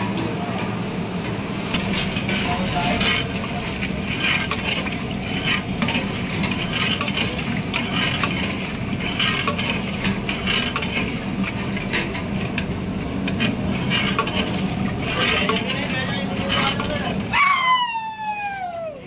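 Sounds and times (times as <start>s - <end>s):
ladle stirring thick stew: 1.4s - 17.3s
steady low rumble: 11.2s - 17.4s.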